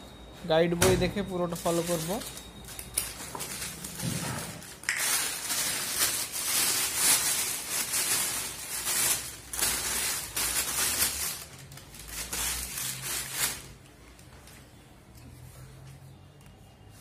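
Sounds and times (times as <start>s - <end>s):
plastic bag rustling and crinkling: 1.4s - 14.6s.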